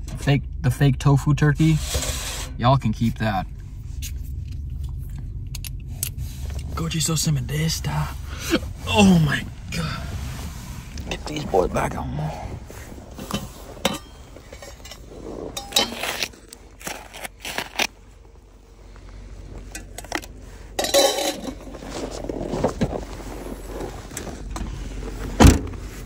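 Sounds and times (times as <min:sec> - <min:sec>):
metal pot scraping: 0:12.6 - 0:17.3
metal pot clinks and knocks: 0:13.3 - 0:15.0, 0:20.8 - 0:21.6.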